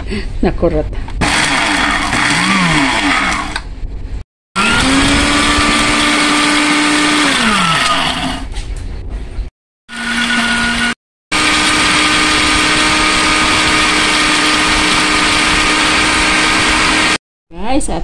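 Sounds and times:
electric blender grinding leaves: 1.2s - 3.6s, 4.6s - 8.5s, 9.9s - 17.2s.

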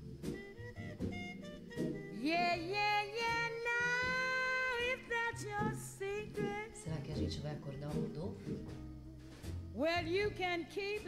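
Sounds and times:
slow jazz accompaniment: 0.0s - 11.0s
woman singing: 2.1s - 8.2s, 9.8s - 11.0s.

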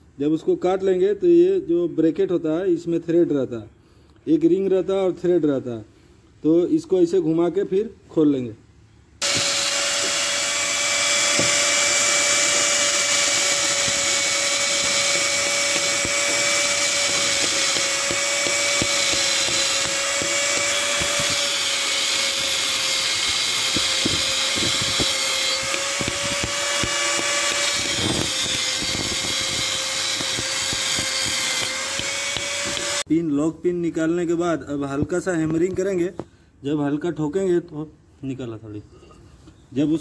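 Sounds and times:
angle grinder cutting metal: 9.2s - 33.1s.

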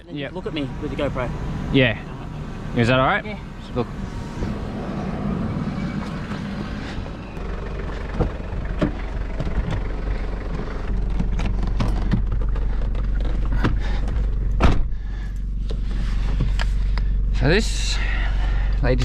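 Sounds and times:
car engine idling: 0.0s - 19.0s
knocks and clicks in cabin: 8.1s - 9.9s, 11.1s - 14.9s.

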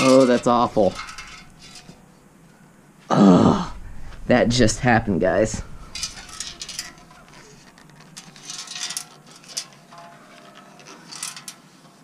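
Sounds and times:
muffler rubbing and scraping: 3.8s - 9.8s.

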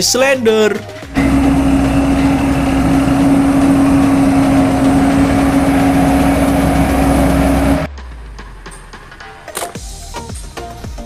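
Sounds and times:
road roller diesel engine running: 1.0s - 7.9s.

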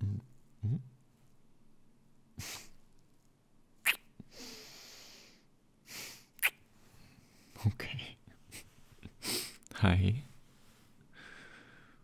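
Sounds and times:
sharp mouth sounds: 3.8s - 4.2s, 6.4s - 6.6s
man breathing close to microphone: 10.5s - 12.0s.

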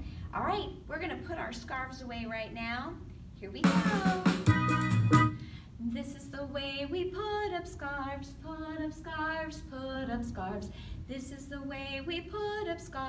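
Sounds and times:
woman singing: 3.6s - 4.5s, 5.8s - 13.0s.

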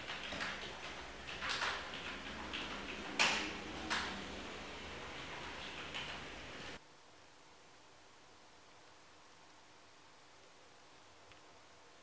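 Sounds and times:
keyboard keystroke clicks: 0.0s - 4.2s.

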